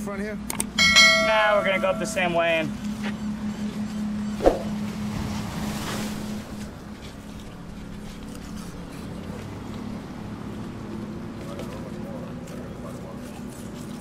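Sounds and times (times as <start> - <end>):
sharp knock: 4.4 - 4.8.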